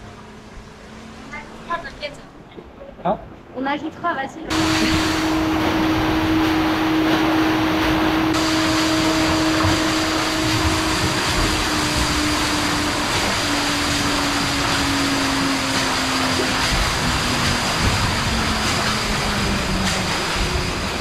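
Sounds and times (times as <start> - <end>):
churning water rushing: 0.0 - 21.0
pump motor hum: 4.5 - 21.0.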